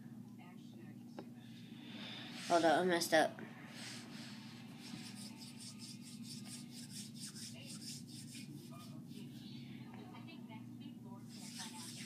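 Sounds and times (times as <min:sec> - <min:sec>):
hands rubbing modelling clay: 0:03.7 - 0:09.4, 0:11.3 - 0:12.0.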